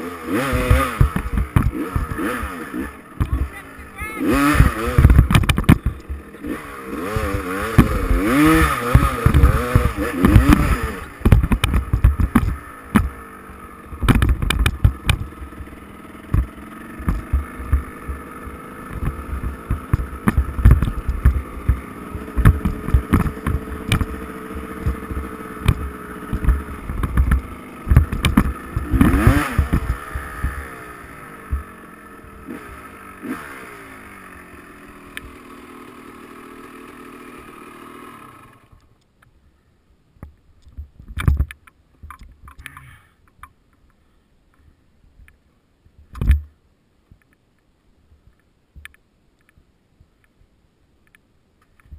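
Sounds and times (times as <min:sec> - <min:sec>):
bike rattling over bumps: 0:00.0 - 0:38.1
dirt bike engine revving: 0:00.0 - 0:38.8.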